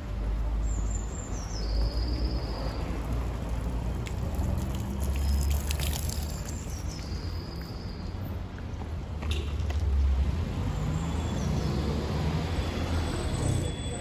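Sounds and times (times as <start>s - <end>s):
city traffic rumble: 0.0s - 14.0s
water splashing onto pavement: 1.6s - 8.3s.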